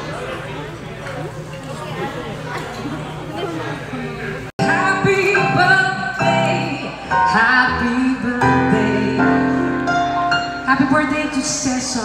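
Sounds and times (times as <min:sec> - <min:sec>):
woman singing: 0:04.6 - 0:09.8, 0:10.6 - 0:12.0.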